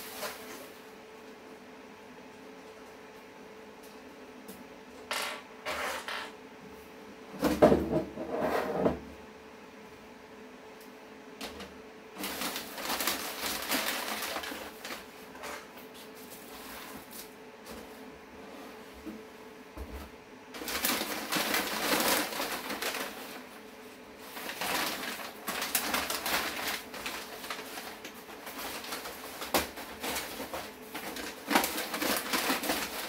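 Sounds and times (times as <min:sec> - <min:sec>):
packing paper and plastic rustling: 0:00.0 - 0:00.9, 0:11.4 - 0:18.0, 0:20.6 - 0:33.0.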